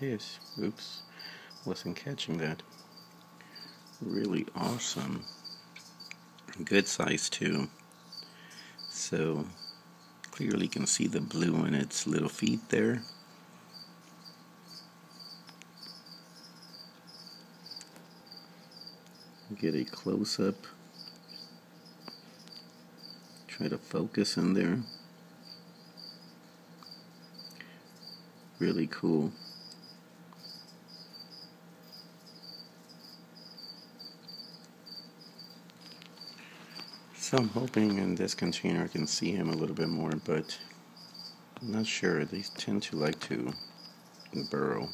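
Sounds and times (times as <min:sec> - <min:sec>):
cricket chirping: 0:00.0 - 0:44.9
faint steady hum: 0:00.0 - 0:44.9.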